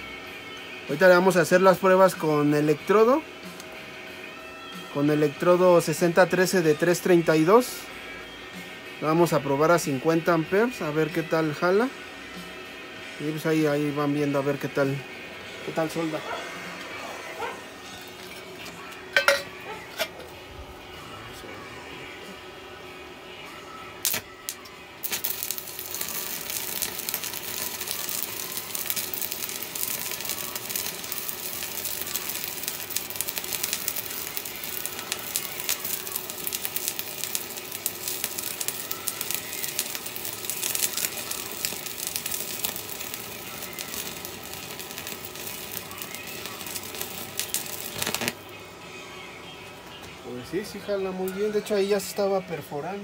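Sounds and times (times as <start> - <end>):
welding arc crackling: 24.0 - 48.5.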